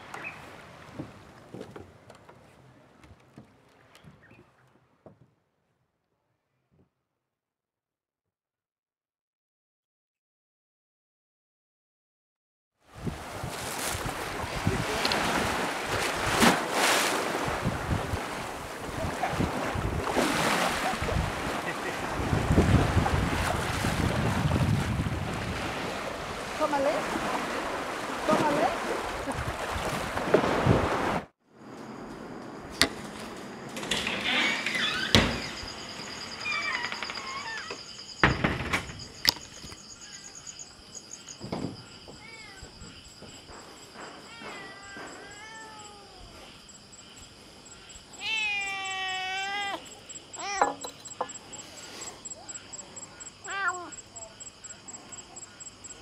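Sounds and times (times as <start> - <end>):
sea water rushing: 0.0 - 2.0, 13.0 - 31.3
wind buffeting microphone: 13.0 - 16.4, 17.3 - 27.9
kittens mewing: 48.2 - 50.8, 53.4 - 54.0.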